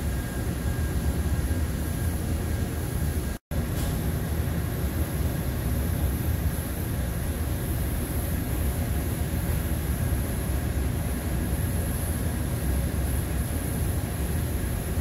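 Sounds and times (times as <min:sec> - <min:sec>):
spray booth airflow roar: 0:00.0 - 0:15.0
spray gun hiss: 0:04.7 - 0:15.0.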